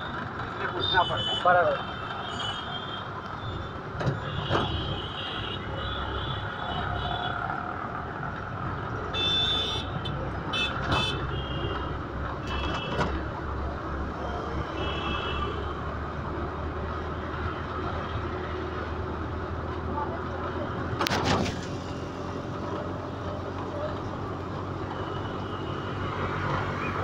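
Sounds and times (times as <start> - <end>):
vehicle horns honking: 0.7 - 7.4, 9.1 - 13.1.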